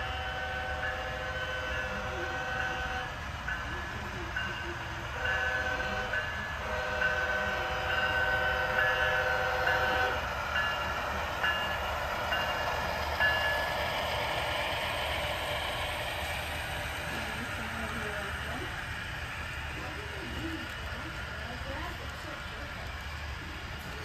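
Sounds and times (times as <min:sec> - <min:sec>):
model train horn: 0:00.0 - 0:03.1, 0:05.2 - 0:10.2
model train wheels and motor rumble: 0:00.0 - 0:24.0.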